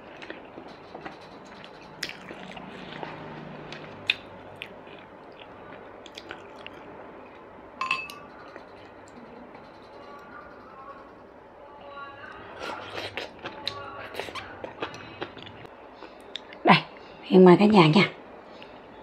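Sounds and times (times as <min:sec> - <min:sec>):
chewing food with wet mouth clicks: 0:00.1 - 0:07.4
chopsticks tapping ceramic bowls: 0:07.8 - 0:08.3.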